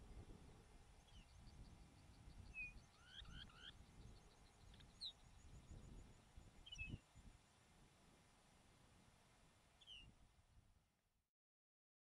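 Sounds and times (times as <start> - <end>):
bird chirps: 1.0 - 7.0.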